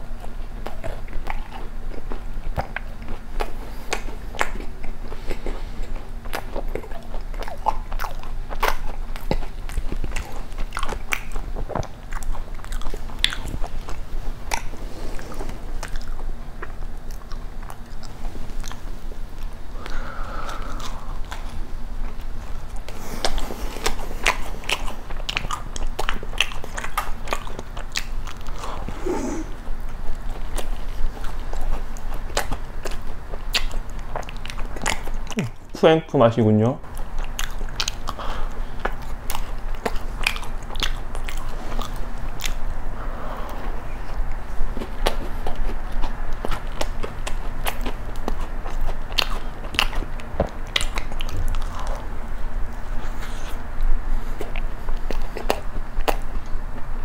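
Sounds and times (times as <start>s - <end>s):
crunchy chewing: 0.0s - 35.8s, 36.8s - 57.0s
wet mouth sounds: 0.1s - 35.8s.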